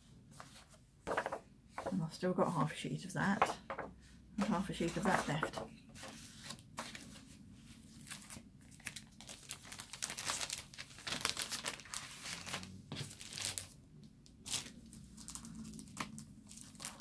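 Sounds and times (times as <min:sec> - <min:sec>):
paper rustling and crinkling: 0:04.4 - 0:13.8, 0:14.4 - 0:17.0.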